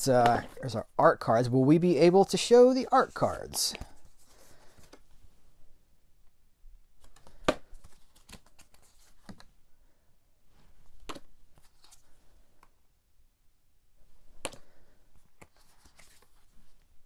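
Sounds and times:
cards rustling: 0:02.1 - 0:05.1, 0:07.0 - 0:09.5, 0:10.9 - 0:12.2, 0:14.3 - 0:16.7.

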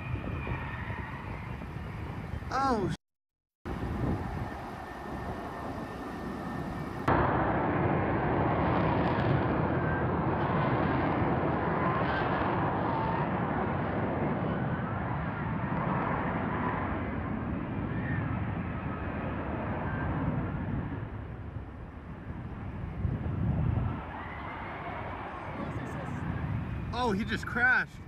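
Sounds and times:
fighter jet hovering: 0:03.7 - 0:12.0.

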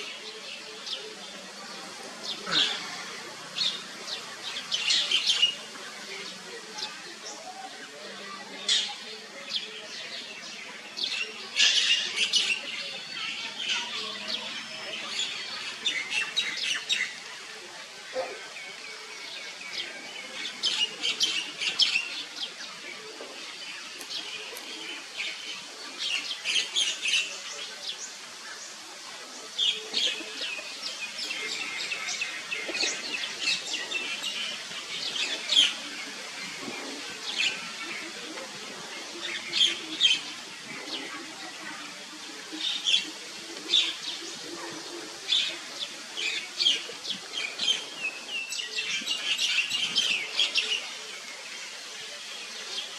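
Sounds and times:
birds chirping: 0:00.0 - 0:07.8, 0:29.4 - 0:38.1.

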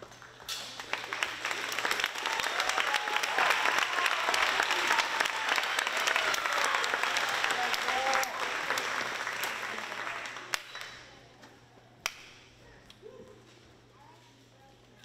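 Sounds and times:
audience applause: 0:00.0 - 0:11.1
single claps: 0:00.0 - 0:11.1, 0:12.0 - 0:12.4.

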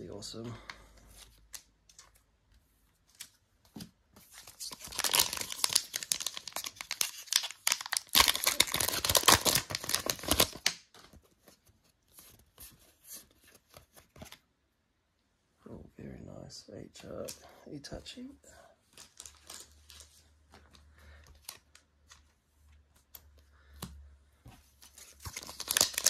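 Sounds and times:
plastic wrapper ripping and crinkling: 0:04.3 - 0:10.9, 0:18.9 - 0:21.9, 0:24.8 - 0:26.0.

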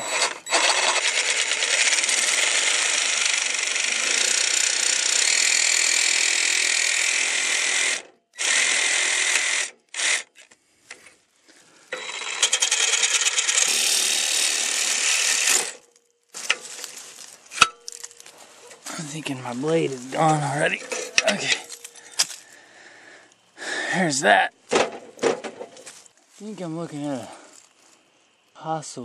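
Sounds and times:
reciprocating saw cutting metal pipe: 0:00.0 - 0:10.3, 0:11.9 - 0:15.9, 0:20.2 - 0:21.9.

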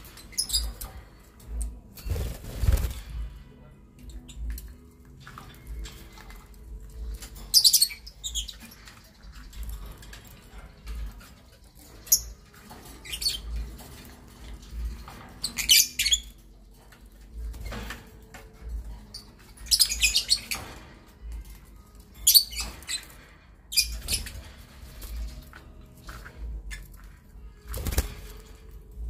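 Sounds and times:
lovebirds chirping: 0:05.6 - 0:17.8, 0:18.4 - 0:29.0.

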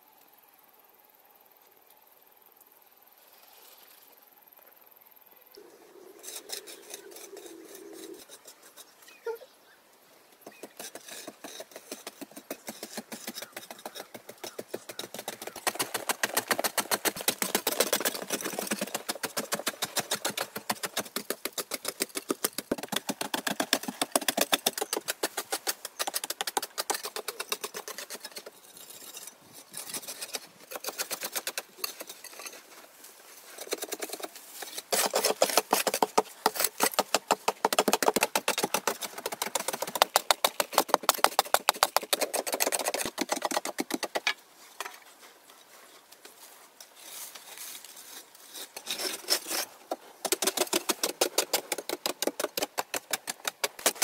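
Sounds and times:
hand tools chopping hard earth: 0:10.5 - 0:28.5, 0:29.6 - 0:32.6, 0:33.6 - 0:44.4, 0:48.6 - 0:54.0.

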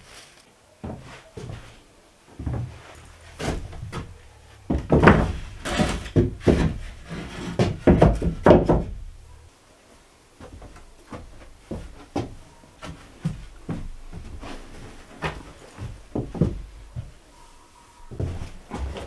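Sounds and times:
wooden boards knocking: 0:03.3 - 0:09.2.

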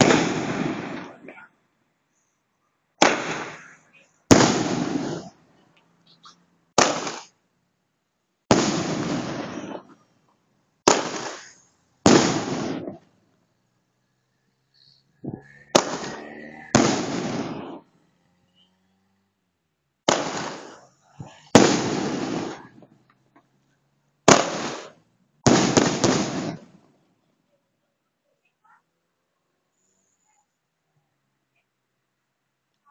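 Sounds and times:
fireworks bangs: 0:00.0 - 0:01.5, 0:03.0 - 0:05.4, 0:06.2 - 0:07.4, 0:08.5 - 0:10.0, 0:10.8 - 0:13.2, 0:15.2 - 0:18.0, 0:20.0 - 0:23.0, 0:24.2 - 0:27.0.

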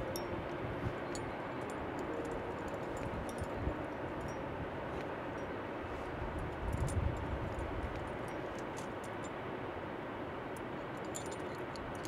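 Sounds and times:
wind: 0:00.0 - 0:12.0
wind buffeting microphone: 0:06.1 - 0:08.4.

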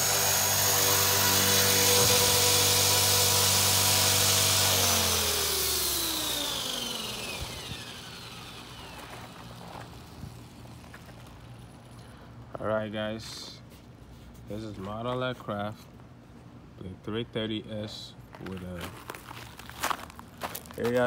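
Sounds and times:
rc helicopter motor whine: 0:00.0 - 0:11.5.

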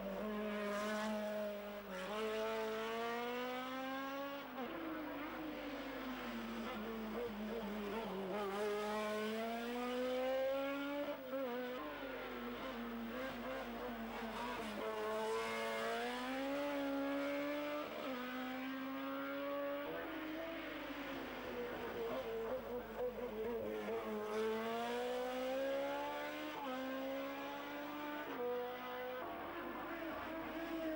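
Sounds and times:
race car engine revving: 0:06.4 - 0:30.9.

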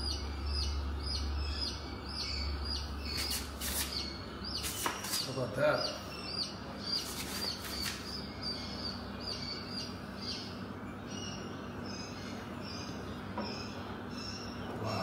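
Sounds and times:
small bird chirping: 0:00.0 - 0:15.0
steady low hum: 0:00.0 - 0:15.0.

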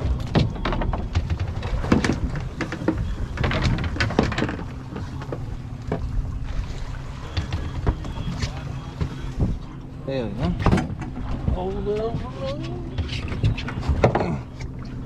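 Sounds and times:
boat engine idling: 0:00.0 - 0:15.0
fish knocking on boat deck: 0:07.2 - 0:09.6.

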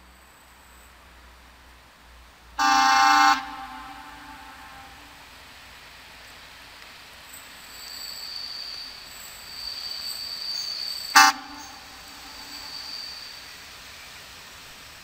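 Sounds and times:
diesel railcar running: 0:00.0 - 0:15.0
train horn blast: 0:02.6 - 0:05.2, 0:11.1 - 0:12.9
thin high steady tone: 0:07.3 - 0:13.7.

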